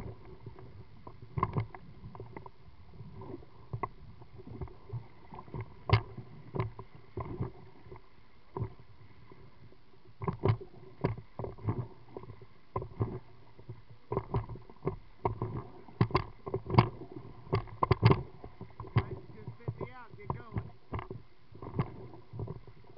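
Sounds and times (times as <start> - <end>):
water slapping inflatable boat: 10.2 - 22.9.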